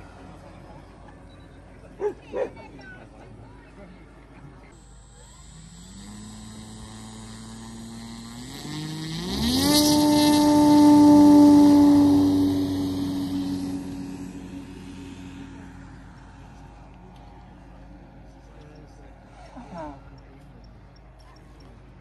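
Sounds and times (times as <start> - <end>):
model plane engine revving: 4.8 - 16.4.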